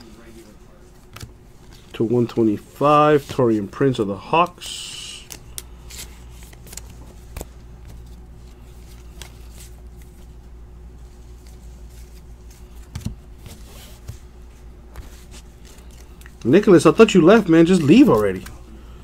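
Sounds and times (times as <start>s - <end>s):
steady low hum: 0.0s - 19.0s
cards clicking and sliding: 5.2s - 10.4s, 11.3s - 14.3s, 14.9s - 16.5s, 17.4s - 18.7s.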